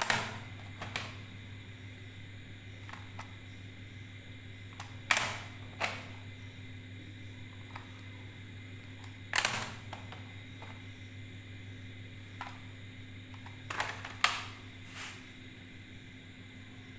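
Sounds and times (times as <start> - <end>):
steady low hum: 0.0 - 16.9
plastic cassette cases clacking: 9.0 - 10.7, 13.4 - 14.5.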